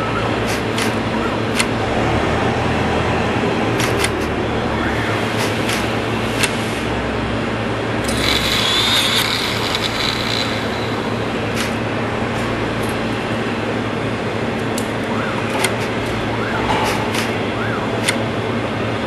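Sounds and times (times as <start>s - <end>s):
sharp clicks: 0.4s - 1.8s, 3.8s - 4.3s
cnc machine motor hum: 7.0s - 13.3s.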